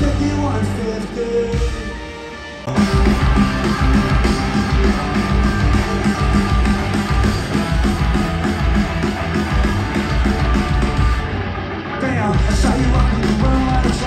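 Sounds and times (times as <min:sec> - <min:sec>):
rock guitars: 0:00.0 - 0:14.0
pounding drum beat: 0:02.7 - 0:11.4, 0:12.4 - 0:14.0.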